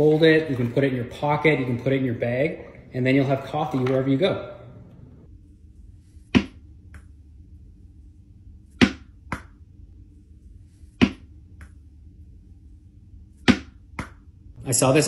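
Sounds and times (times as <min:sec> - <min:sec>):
low room hum: 0:00.0 - 0:15.0
tennis ball bouncing on desk: 0:06.3 - 0:06.6, 0:08.8 - 0:09.6, 0:11.0 - 0:11.3, 0:13.4 - 0:14.2.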